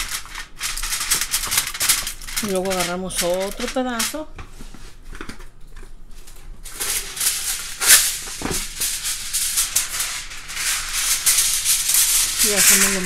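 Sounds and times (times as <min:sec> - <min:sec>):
aluminium foil crinkling: 0:00.0 - 0:04.3, 0:04.9 - 0:13.0.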